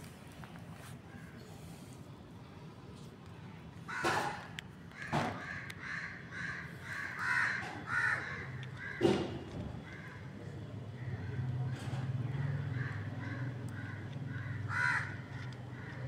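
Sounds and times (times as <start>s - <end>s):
crows cawing: 1.1s - 1.5s, 3.9s - 16.0s.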